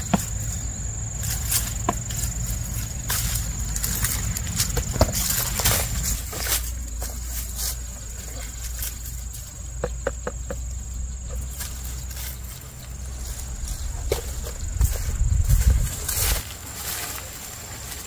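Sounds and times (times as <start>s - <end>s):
high insect drone: 0.0s - 18.0s
low rumble: 10.7s - 16.5s.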